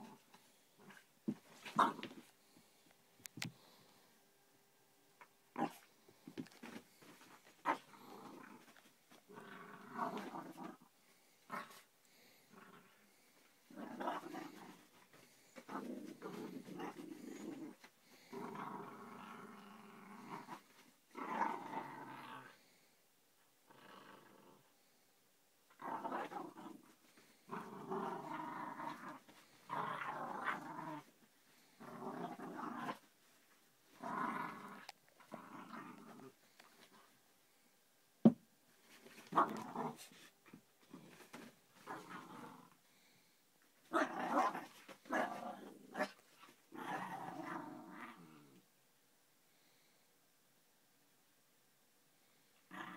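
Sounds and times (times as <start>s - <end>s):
puppy growling in play: 0.0s - 2.3s, 5.5s - 22.8s, 23.6s - 24.7s, 25.7s - 37.1s, 39.0s - 43.1s, 43.8s - 48.7s, 52.6s - 52.9s.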